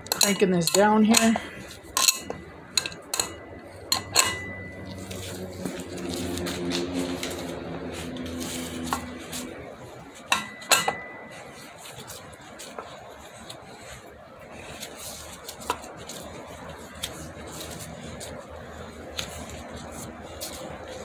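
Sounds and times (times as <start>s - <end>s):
metal tools clinking: 0.0s - 5.4s, 10.3s - 11.8s
low hum: 1.1s - 21.0s.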